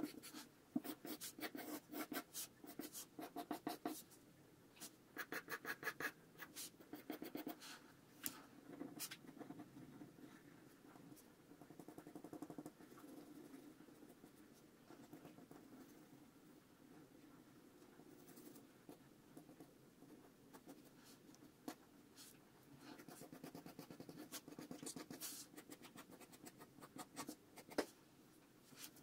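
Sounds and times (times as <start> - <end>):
pencil sketching on paper: 0.0 - 4.0, 22.9 - 27.8.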